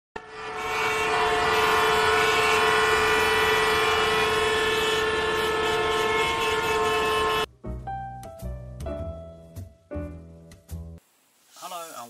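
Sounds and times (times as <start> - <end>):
train horn blast: 0.2 - 7.5.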